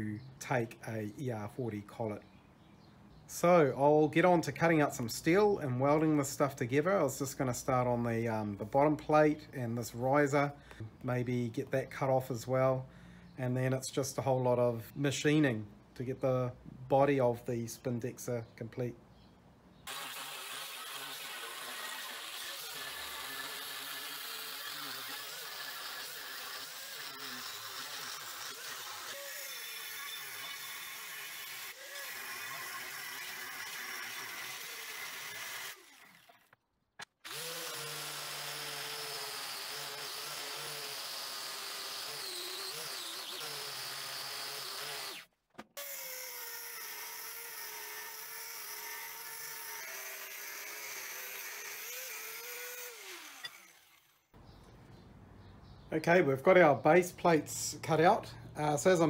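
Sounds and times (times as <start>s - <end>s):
angle grinder cutting steel: 19.9s - 36.4s, 37.2s - 54.4s.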